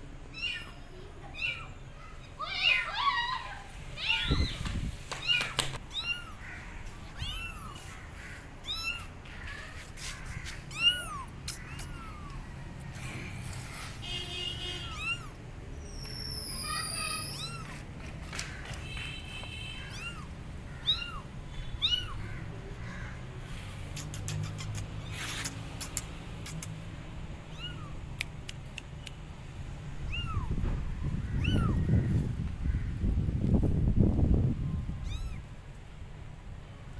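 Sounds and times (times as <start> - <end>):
kittens meowing: 0.3 - 4.6, 5.2 - 12.7, 14.8 - 15.4, 16.5 - 17.8, 19.8 - 22.5, 27.5 - 28.3, 30.0 - 32.0, 35.0 - 35.5.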